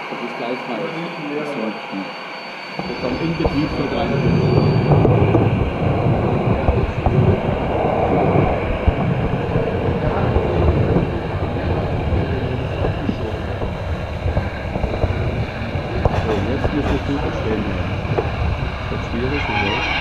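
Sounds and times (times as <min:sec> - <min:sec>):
model train wheels rumbling on rail: 0:10.1 - 0:19.8.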